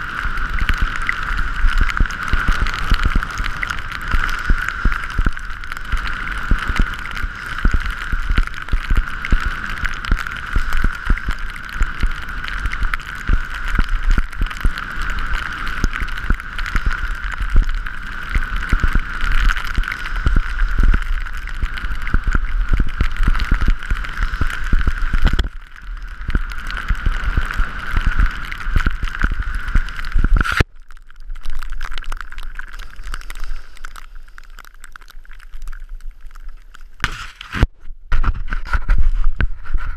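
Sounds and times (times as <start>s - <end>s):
skis hissing on snow: 0.0s - 14.0s, 14.7s - 26.0s, 32.8s - 34.6s, 37.0s - 37.6s.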